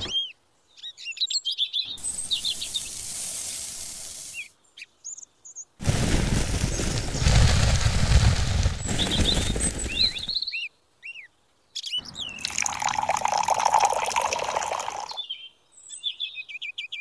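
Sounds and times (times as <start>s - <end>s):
birds chirping: 0.0s - 17.0s
powder poured into tin can: 2.6s - 4.4s, 5.8s - 10.3s, 12.4s - 15.2s
water pouring into can: 12.4s - 15.2s.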